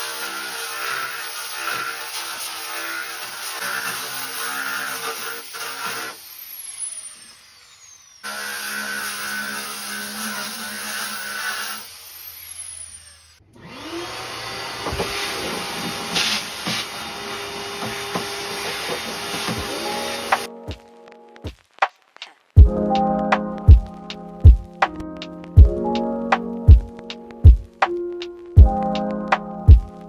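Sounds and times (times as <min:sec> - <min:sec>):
random orbital sander running: 0:00.0 - 0:20.5
shop vacuum motor running: 0:05.2 - 0:20.5.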